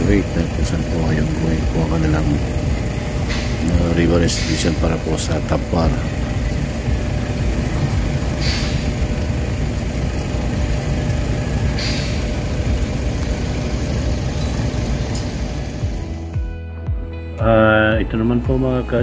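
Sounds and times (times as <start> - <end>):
heavy machinery engine rumbling: 0.0 - 16.4
short hisses: 8.4 - 8.9, 11.7 - 12.2.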